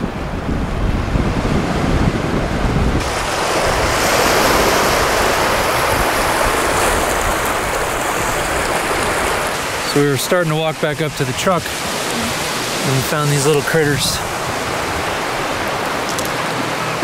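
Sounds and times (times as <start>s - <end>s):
wind rumbling on microphone: 0.0s - 10.0s
small waves breaking on rocks: 3.0s - 17.0s.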